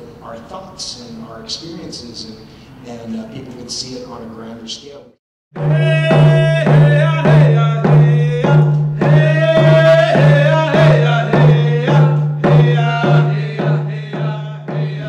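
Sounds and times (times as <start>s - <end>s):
hand drum beat: 5.6s - 15.0s
person singing: 5.6s - 15.0s.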